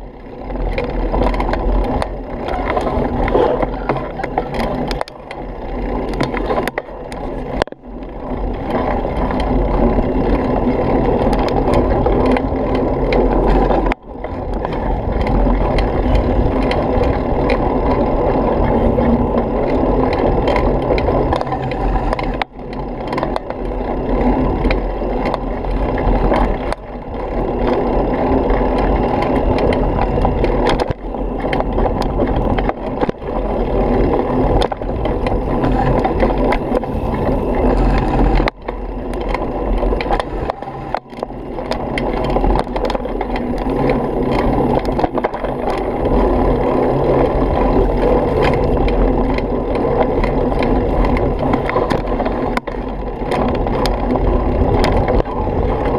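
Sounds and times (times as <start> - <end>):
bike rumbling and rattling: 0.0 - 55.9
wind on microphone: 0.0 - 55.9.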